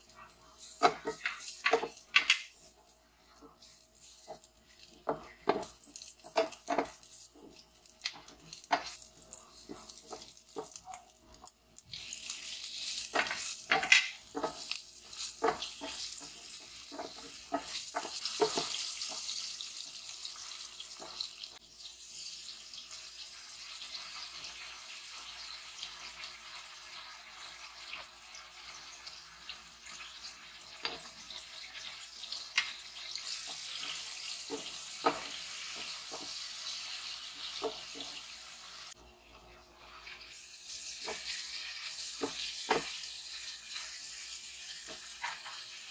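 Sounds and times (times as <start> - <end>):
kitchen knocks and clatters: 0.8 - 2.6, 4.3 - 9.0, 13.1 - 19.4, 33.4 - 36.4, 42.2 - 43.0.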